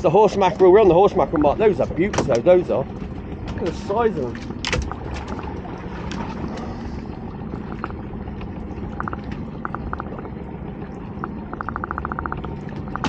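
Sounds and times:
water sloshing against boat hull: 0:00.0 - 0:13.0.

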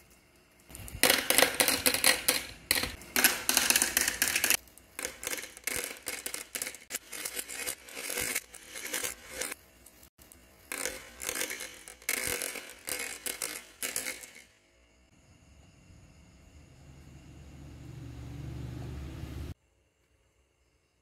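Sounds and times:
marbles clattering into plastic bin: 0:00.7 - 0:09.6, 0:10.7 - 0:14.5
marbles rattling down metal rail: 0:00.7 - 0:09.6, 0:10.6 - 0:14.6.

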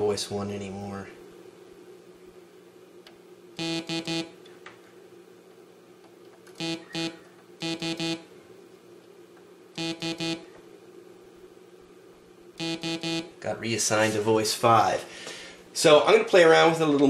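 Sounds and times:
faint steady hum: 0:00.0 - 0:17.0
synthesizer note stabs: 0:12.6 - 0:13.3.

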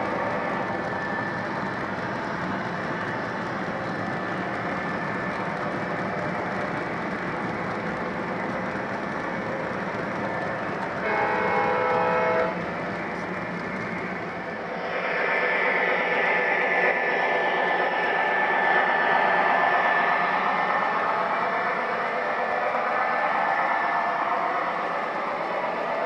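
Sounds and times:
model train wheels rumbling on rails: 0:00.0 - 0:26.0
diesel horn blast: 0:11.0 - 0:12.6.

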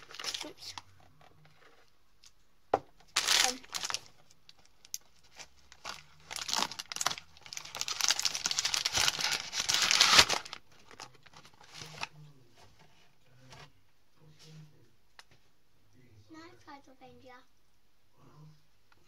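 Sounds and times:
plastic packaging crinkling: 0:00.0 - 0:00.8, 0:03.1 - 0:12.1.

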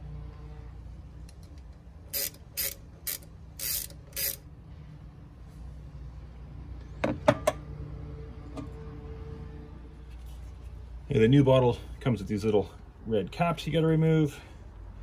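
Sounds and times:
ratchet wrench clicking: 0:01.3 - 0:04.5.

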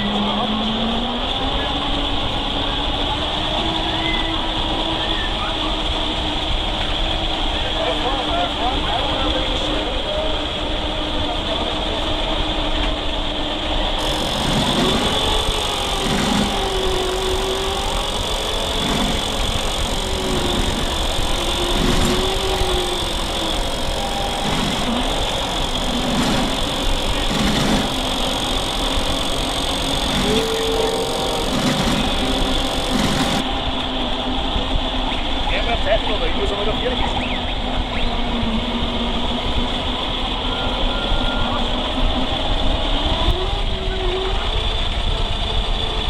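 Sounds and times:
toy truck whining and rolling: 0:14.0 - 0:33.4.

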